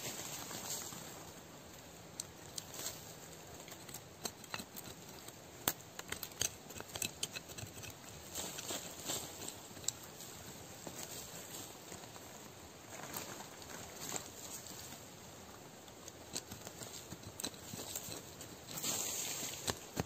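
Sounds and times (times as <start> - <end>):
hand tool scraping soil: 2.4 - 12.0, 16.1 - 20.0.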